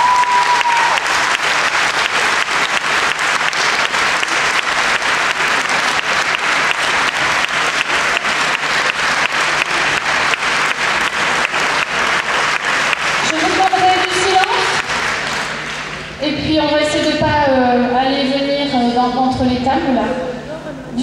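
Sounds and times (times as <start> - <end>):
audience applauding: 0.0 - 16.2.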